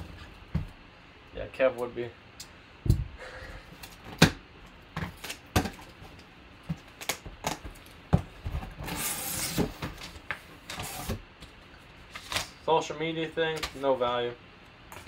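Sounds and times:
cardboard flaps rustling and scraping: 7.6s - 11.2s.

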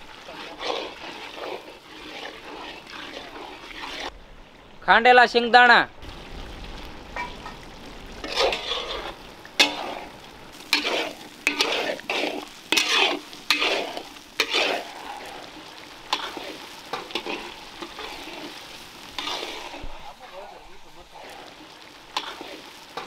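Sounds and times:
scraping against metal pan: 0.0s - 4.1s, 8.2s - 10.0s, 10.7s - 15.4s, 19.2s - 20.2s, 22.2s - 23.0s
steady sizzle: 0.0s - 23.0s.

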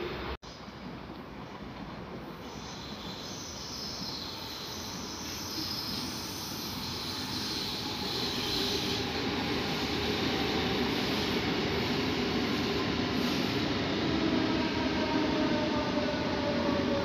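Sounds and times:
high hiss of wheels on rails: 0.0s - 17.0s
train rolling along track: 0.1s - 17.0s.

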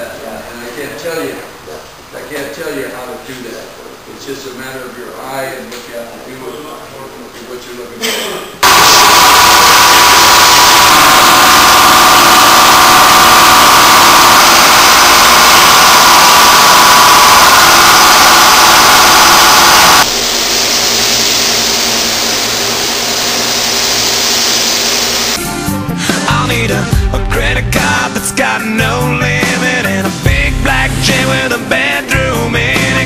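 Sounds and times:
paint spray gun hissing: 8.6s - 25.4s.

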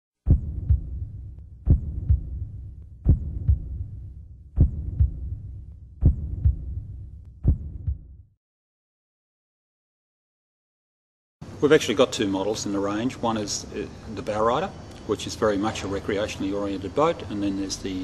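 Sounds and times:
heartbeat double thumps: 0.2s - 8.4s
low steady hum: 0.3s - 8.0s.

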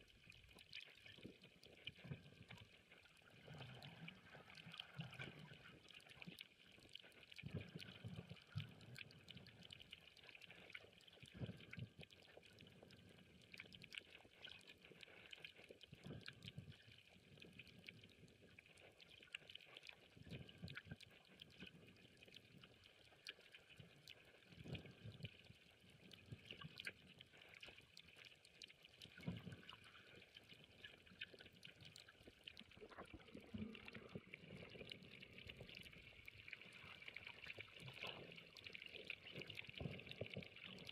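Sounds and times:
underwater crackle of clicks: 0.0s - 40.9s.

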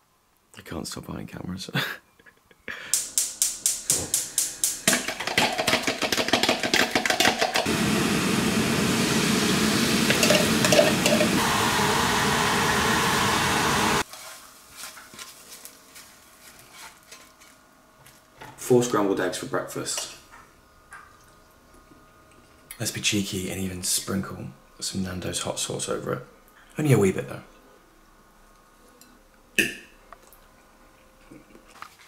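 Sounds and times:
egg sizzling in frying pan: 3.0s - 15.2s.

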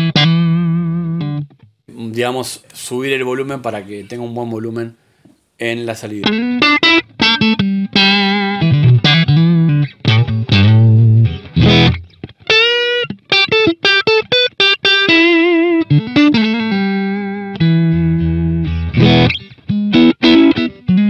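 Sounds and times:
electric guitar lead phrase: 6.2s - 21.0s
strummed guitar chords: 6.2s - 21.0s.

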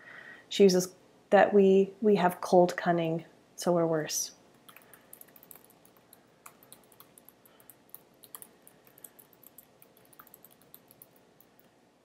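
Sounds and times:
faint keyboard typing: 4.5s - 11.8s.

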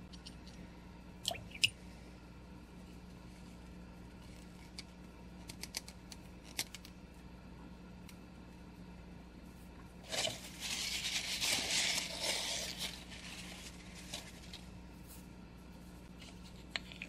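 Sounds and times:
paper rustling under hand: 10.0s - 15.3s.

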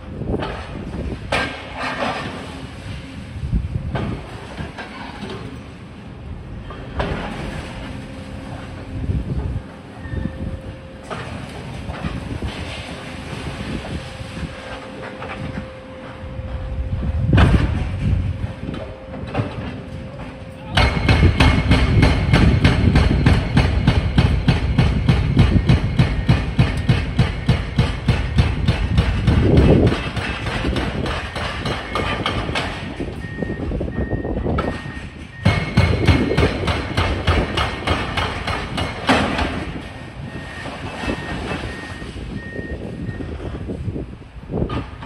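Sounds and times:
excavator diesel engines rumbling: 0.0s - 45.0s
hydraulic breaker hammering concrete: 20.8s - 33.0s, 34.6s - 39.9s.

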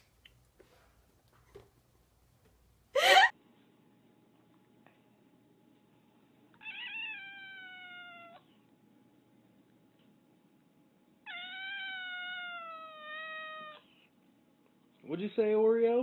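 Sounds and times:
cat meowing: 6.6s - 8.5s, 11.2s - 13.9s.

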